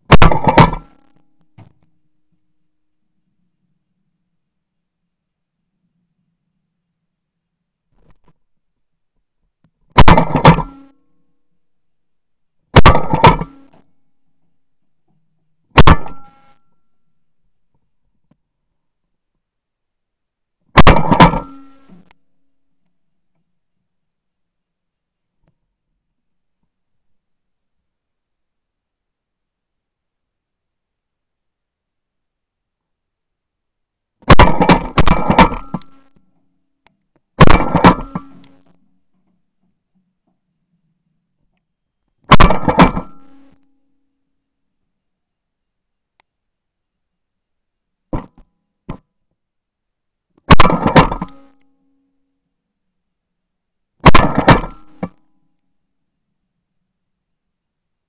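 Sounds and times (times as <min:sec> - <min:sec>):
shotgun blasts: 0:00.1 - 0:01.0, 0:10.0 - 0:10.8, 0:12.8 - 0:13.7, 0:15.8 - 0:16.3, 0:20.8 - 0:21.7, 0:34.2 - 0:35.8, 0:37.4 - 0:38.4, 0:42.3 - 0:43.3, 0:50.5 - 0:51.4, 0:54.0 - 0:55.1.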